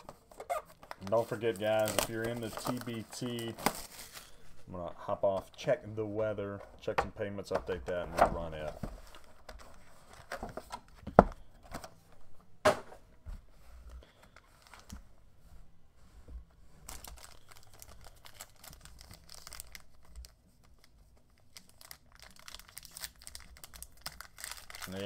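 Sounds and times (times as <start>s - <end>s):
foil wrapper crinkling: 0.6s - 4.4s, 16.9s - 25.0s.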